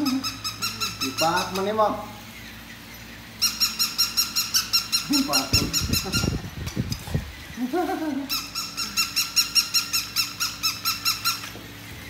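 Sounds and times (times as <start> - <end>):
toy dog electronic yapping: 3.4 - 6.4, 8.3 - 11.6.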